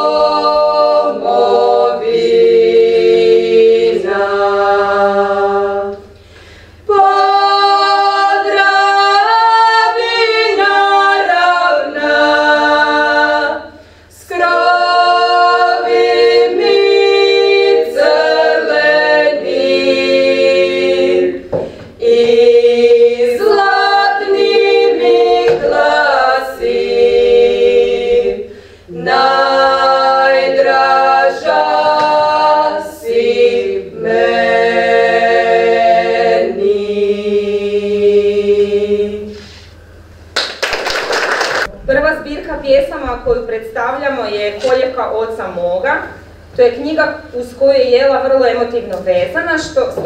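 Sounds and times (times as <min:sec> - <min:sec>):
women singing a cappella: 0:00.0 - 0:06.2, 0:06.8 - 0:39.6.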